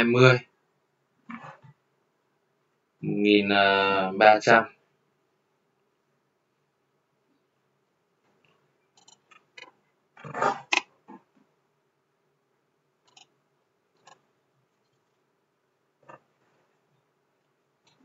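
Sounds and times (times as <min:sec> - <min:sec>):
computer mouse clicking: 0:08.5 - 0:09.8, 0:13.0 - 0:13.3, 0:14.0 - 0:14.2.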